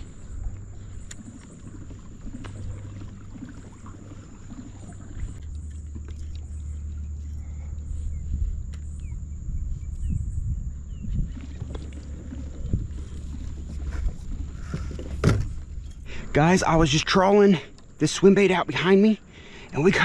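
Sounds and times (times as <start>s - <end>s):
wind and water on microphone: 0.0s - 20.0s
faint bird chirps: 5.5s - 11.7s.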